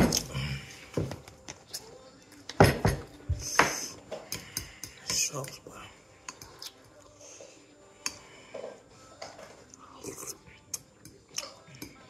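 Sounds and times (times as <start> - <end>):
person chewing noodles: 6.3 - 7.2.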